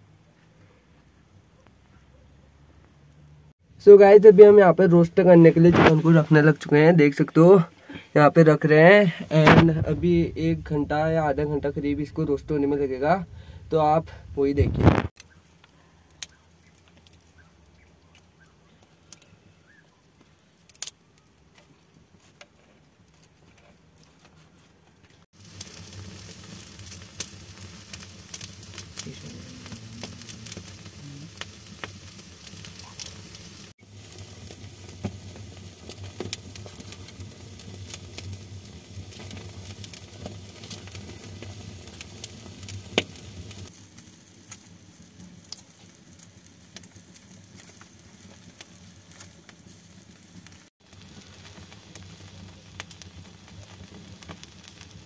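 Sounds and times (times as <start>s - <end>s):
chicken sizzling: 2.6s - 22.2s, 25.3s - 55.0s
campfire crackling and popping: 2.8s - 55.0s.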